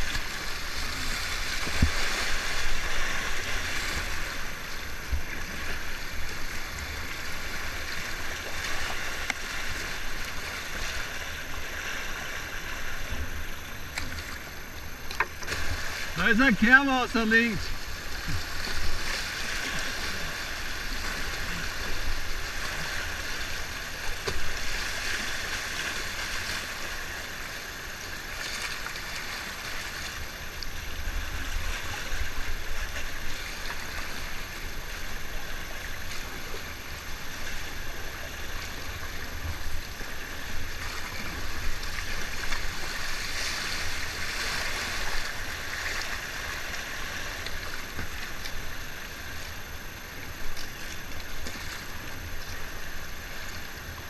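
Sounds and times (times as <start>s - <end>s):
river water rushing: 15.5s - 27.5s, 40.8s - 48.0s.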